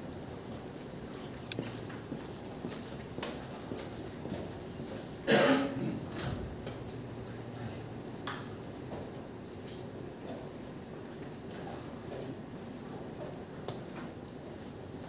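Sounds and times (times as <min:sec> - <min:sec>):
person coughing: 0:05.3 - 0:06.1.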